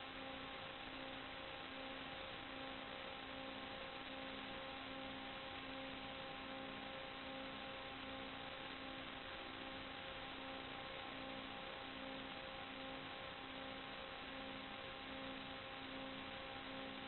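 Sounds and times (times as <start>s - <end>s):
faint electronic whine: 0.0s - 17.0s
static hiss: 0.0s - 17.0s.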